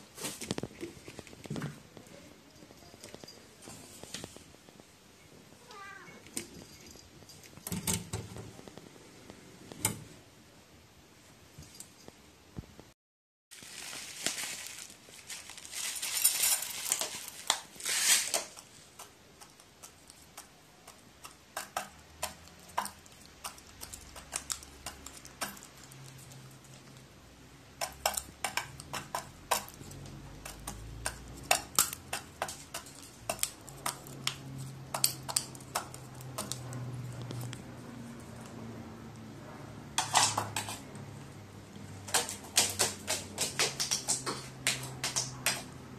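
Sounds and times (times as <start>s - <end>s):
rustling: 0.0s - 9.9s, 13.5s - 20.5s.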